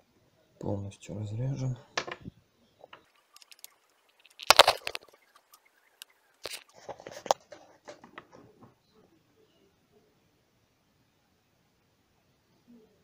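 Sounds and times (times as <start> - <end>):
handling clicks and rustles: 2.0 - 8.8.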